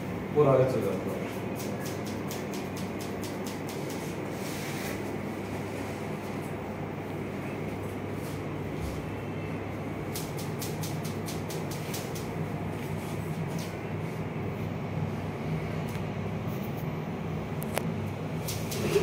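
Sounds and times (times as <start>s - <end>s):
low room hum: 0.0s - 19.0s
scissors snipping hair: 1.5s - 4.2s, 10.1s - 12.3s.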